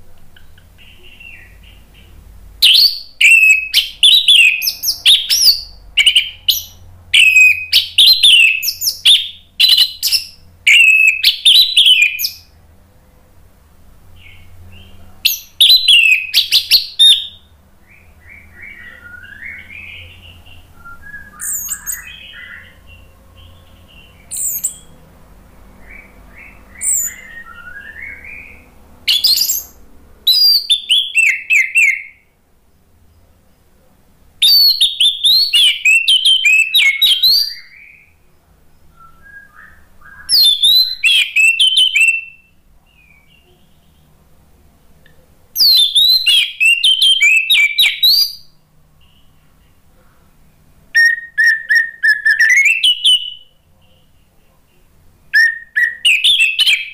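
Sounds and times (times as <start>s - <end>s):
thrush singing whistled phrases: 2.6s - 12.5s, 15.3s - 22.8s, 24.0s - 25.0s, 25.8s - 32.2s, 34.4s - 38.2s, 38.9s - 42.6s, 45.6s - 48.6s, 51.0s - 53.5s, 55.3s - 56.9s
short high bird calls: 21.3s - 25.0s, 25.8s - 32.2s.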